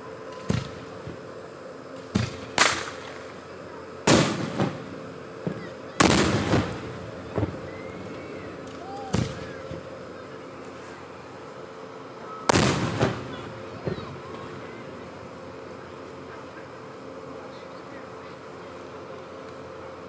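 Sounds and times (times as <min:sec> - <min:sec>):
firework shells bursting: 0:02.0 - 0:03.3, 0:12.5 - 0:14.1.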